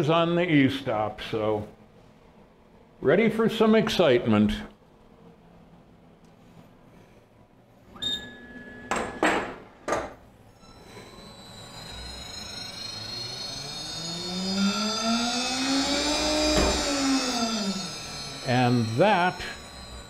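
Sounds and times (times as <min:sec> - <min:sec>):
spindle motor whine: 0:07.9 - 0:09.4, 0:10.4 - 0:20.0.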